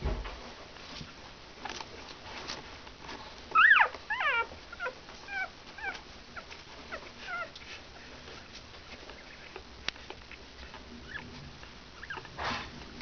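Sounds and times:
puppies whimpering and squeaking: 3.5 - 12.7.

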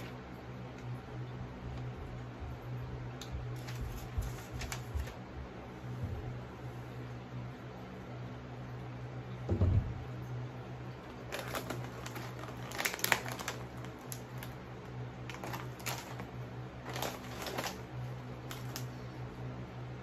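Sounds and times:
steady low hum: 0.0 - 20.0
plastic wrappers crinkling: 3.5 - 5.2, 11.1 - 19.0.

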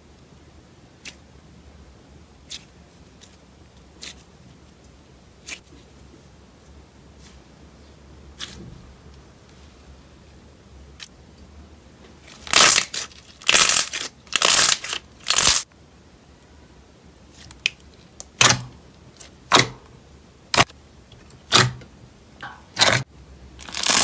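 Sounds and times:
slime squelching: 2.4 - 4.7, 12.2 - 15.6.

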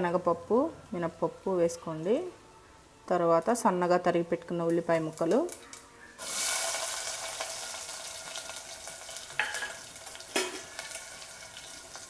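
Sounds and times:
onions sizzling in hot oil: 4.7 - 12.0
spoon knocking against pot: 9.4 - 10.7.

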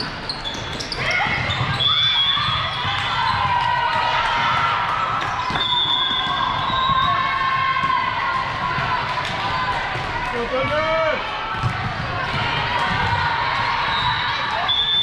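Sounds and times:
shoe squeaks on court: 0.0 - 2.7
volleyball hits: 0.7 - 15.0
players shouting: 1.0 - 15.0.

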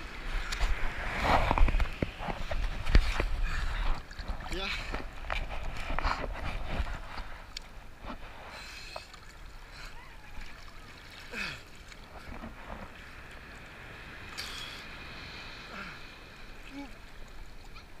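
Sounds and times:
water splashes: 0.0 - 18.0
water sloshing around swimmer: 0.2 - 13.5.

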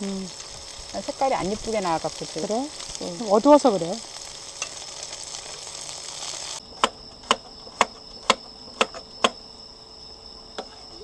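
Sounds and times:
chicken sizzling in oil: 0.0 - 6.6
crickets trilling: 0.0 - 11.0.

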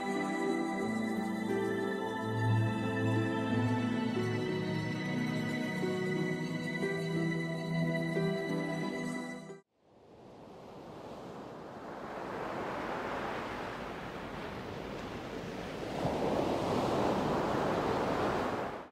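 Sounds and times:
sea waves washing onto shore: 10.0 - 18.9.

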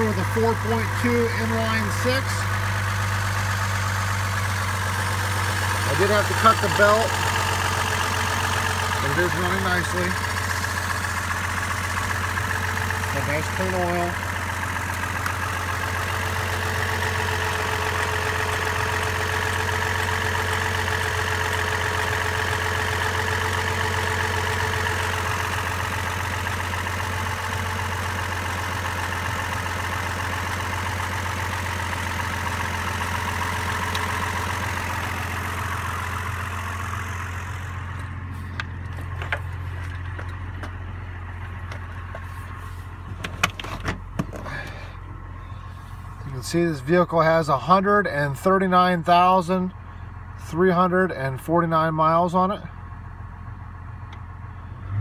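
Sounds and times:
car engine idling: 0.0 - 55.0
sharp clicks and knocks: 43.1 - 44.5.

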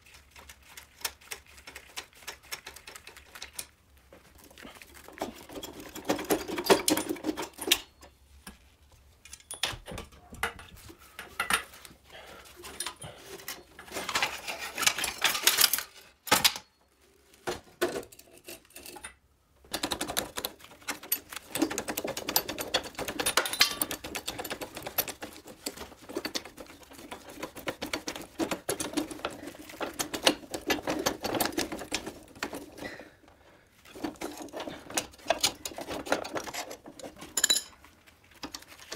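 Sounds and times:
tools and metal parts clicking: 5.2 - 8.2, 9.2 - 11.9, 12.6 - 16.8, 17.8 - 32.9, 33.9 - 38.9.

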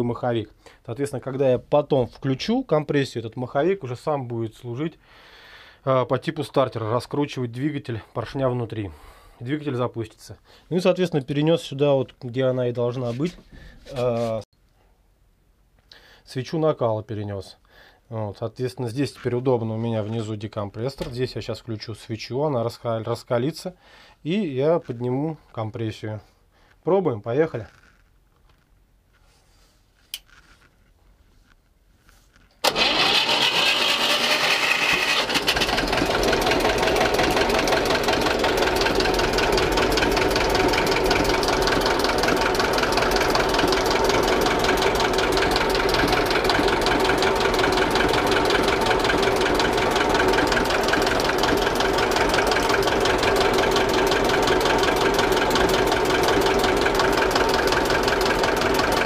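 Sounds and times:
diesel engine starting and clattering: 32.6 - 59.0.

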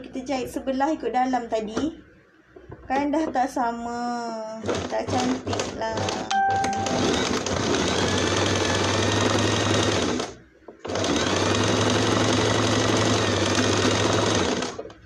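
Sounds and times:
sewing machine stitching: 4.6 - 15.0.

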